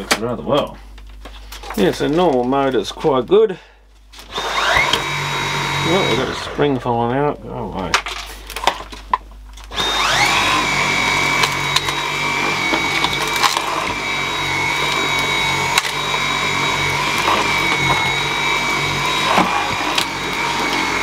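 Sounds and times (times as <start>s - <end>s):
cordless vacuum whine: 4.2s - 6.9s, 9.6s - 21.0s.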